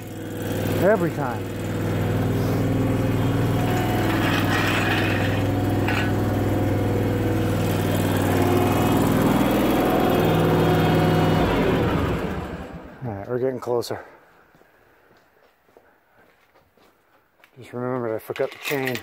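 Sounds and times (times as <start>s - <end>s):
tractor engine running: 0.0s - 13.2s.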